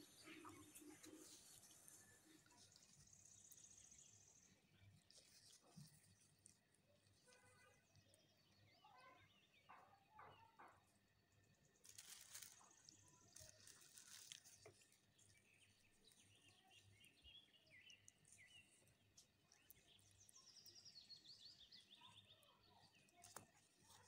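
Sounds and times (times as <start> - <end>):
faint bird chirps: 0.0 - 11.0, 11.8 - 24.0
parchment paper rustling: 0.2 - 8.0, 11.6 - 16.4, 23.0 - 24.0.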